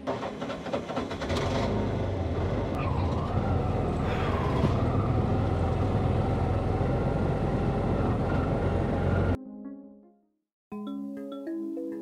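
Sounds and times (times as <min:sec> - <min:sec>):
auto rickshaw engine drone: 0:00.0 - 0:09.4.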